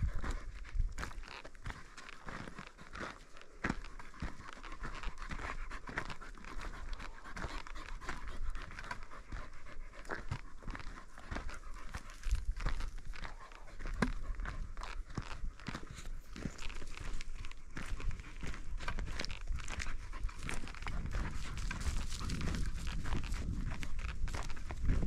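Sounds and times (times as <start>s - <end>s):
dog panting: 0.0s - 25.0s
footsteps crunching on dirt: 0.0s - 25.0s.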